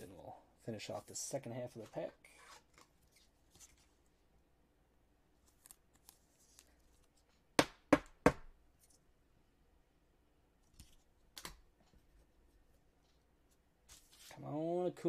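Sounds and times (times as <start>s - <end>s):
rustling of card and sleeve: 0.8s - 4.3s, 5.4s - 7.5s, 10.6s - 14.5s.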